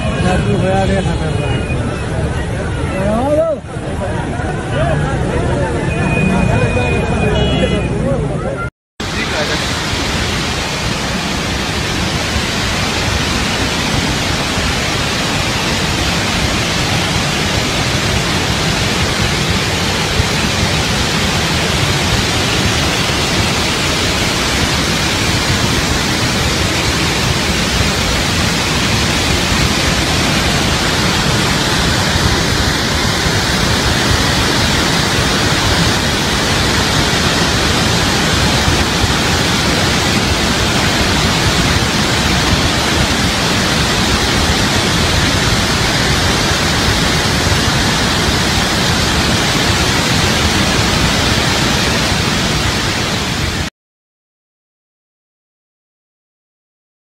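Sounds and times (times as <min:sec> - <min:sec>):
floodwater rushing through gorge: 0:09.0 - 0:53.7.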